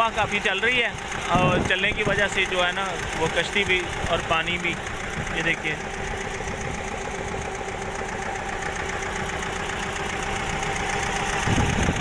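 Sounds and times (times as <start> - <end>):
motor boat engine running: 0.0 - 12.0
strong wind: 11.4 - 12.0.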